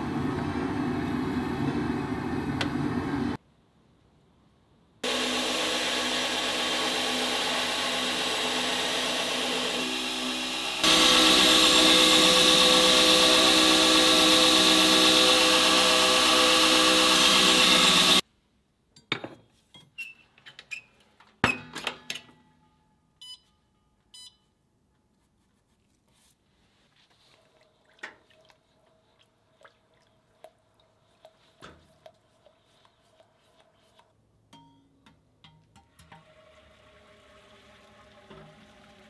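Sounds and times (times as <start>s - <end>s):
belt grinder grinding blade: 5.0s - 18.2s
short keypad beeps: 24.1s - 24.4s.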